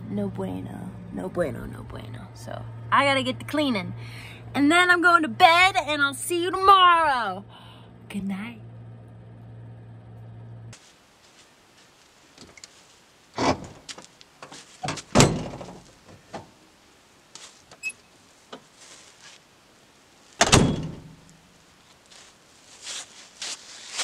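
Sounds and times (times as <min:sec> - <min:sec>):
van door shutting thunk: 0:13.4 - 0:14.0, 0:14.8 - 0:16.5, 0:20.4 - 0:21.2
van door clunking and knocking: 0:13.4 - 0:16.5, 0:20.4 - 0:21.2.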